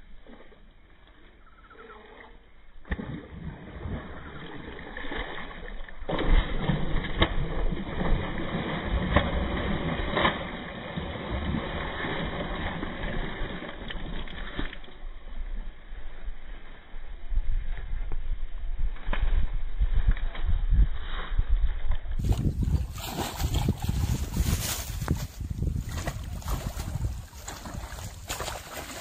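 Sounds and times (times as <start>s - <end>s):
fish thrashing and splashing water: 2.9s - 15.0s, 22.2s - 29.0s.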